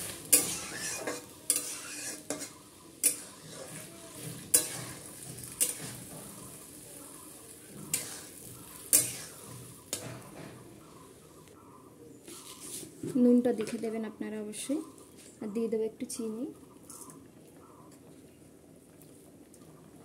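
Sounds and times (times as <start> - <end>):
metal spatula scraping a pan: 0.0 - 6.8, 7.7 - 10.7
greens sizzling in oil: 0.0 - 11.6.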